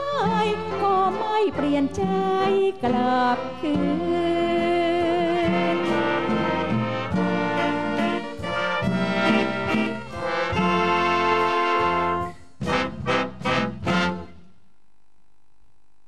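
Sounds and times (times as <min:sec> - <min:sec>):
big band with brass and saxophones: 0:05.4 - 0:14.4.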